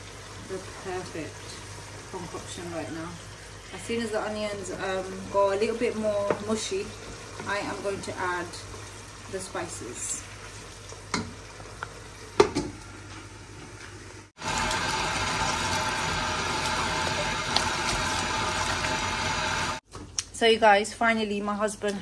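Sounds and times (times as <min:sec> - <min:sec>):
chicken rinsed by hand: 0:14.4 - 0:19.8.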